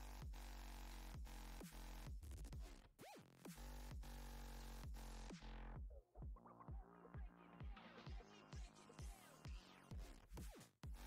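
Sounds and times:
electronic dance music: 6.2 - 11.0.

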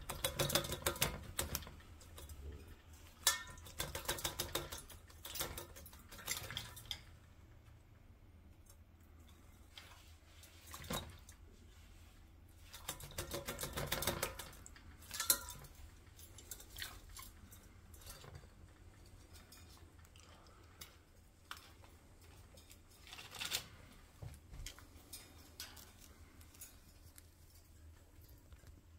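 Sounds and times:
claws clicking on wire cage bars: 0.0 - 7.3, 12.7 - 24.0, 24.6 - 28.9.

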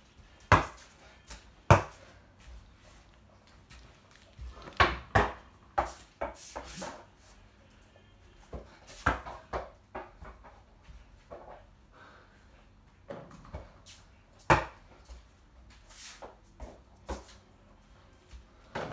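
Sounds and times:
ball bouncing on wooden floor: 0.4 - 2.0, 4.4 - 6.7.

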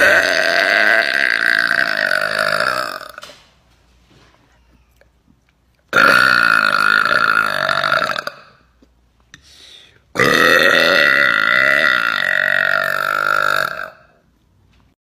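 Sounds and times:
woman burping loudly: 0.0 - 3.2, 5.9 - 8.7, 10.1 - 14.1.

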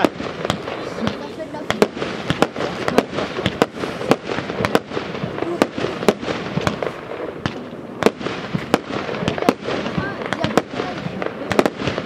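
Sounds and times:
firework shells bursting: 0.0 - 12.0
steady background noise: 0.0 - 12.0.

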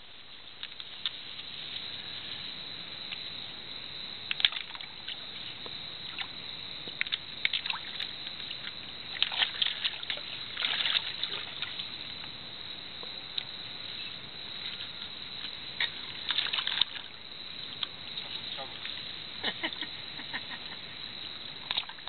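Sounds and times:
steady hiss: 0.0 - 9.2
water splashing: 4.3 - 12.4, 14.4 - 22.0.

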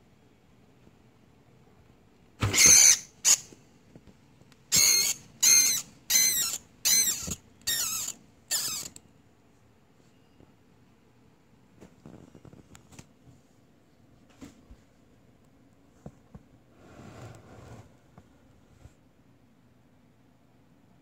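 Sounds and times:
rodent squealing: 2.5 - 3.5, 4.7 - 9.0.

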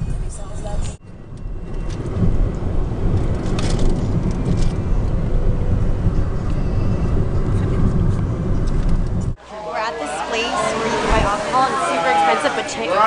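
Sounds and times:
road and wind noise in car: 0.0 - 9.4.

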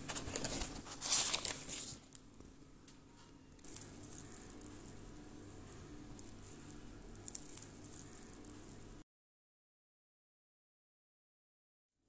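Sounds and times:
paper and cardboard rustling: 0.0 - 2.2
fried pastry crackling: 0.0 - 9.0.

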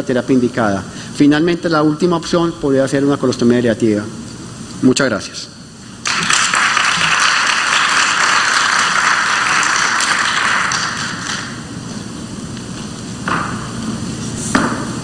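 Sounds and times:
audience applauding: 6.0 - 11.7.

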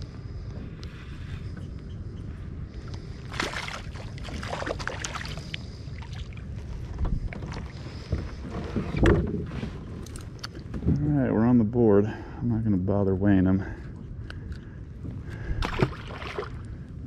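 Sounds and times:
low steady rumble: 0.0 - 17.0
water splashing: 3.2 - 6.4, 15.6 - 16.6.

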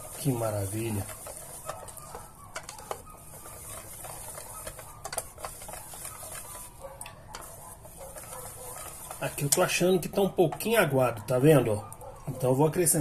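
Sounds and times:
whisk clicking against metal bowl: 0.0 - 9.9.

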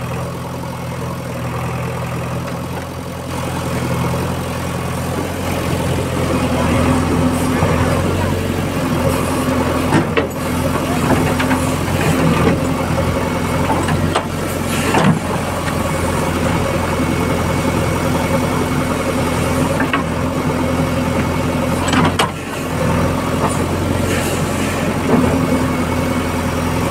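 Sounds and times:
diesel engine running: 0.0 - 26.9.

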